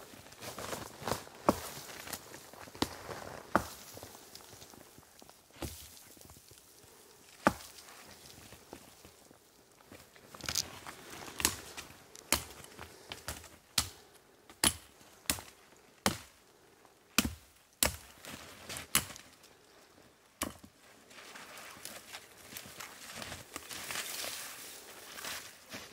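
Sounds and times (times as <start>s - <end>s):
sharp wood cracks: 10.3s - 16.4s.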